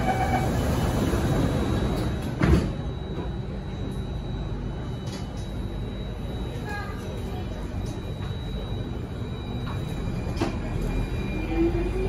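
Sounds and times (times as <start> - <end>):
train doors sliding shut: 0.0 - 2.9
train humming: 0.0 - 12.0
door warning beeps: 1.6 - 12.0.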